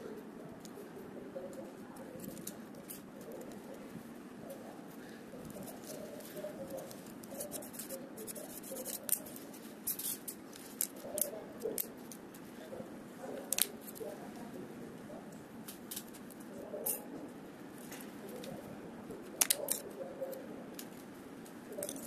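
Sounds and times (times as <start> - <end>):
wooden sticks clicking: 6.6 - 12.2, 13.5 - 14.1, 19.3 - 21.0.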